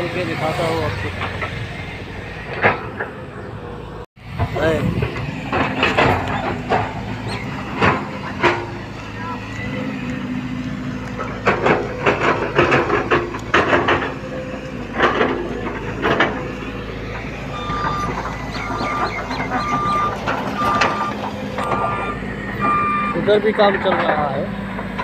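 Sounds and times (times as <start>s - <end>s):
diesel engine humming: 0.0s - 25.0s
reversing alarm beeping: 17.5s - 23.2s.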